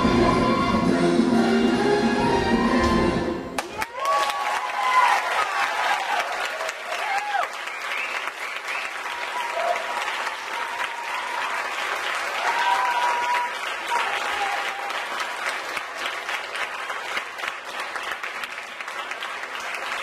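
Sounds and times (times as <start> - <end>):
audience applauding: 3.6 - 20.0.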